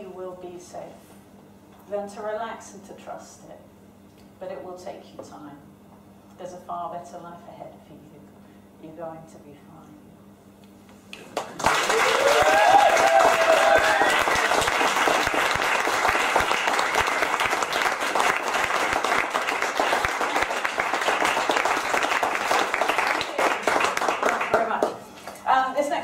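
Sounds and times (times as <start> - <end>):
audience applauding: 11.4 - 24.9
crowd whooping: 11.6 - 17.4.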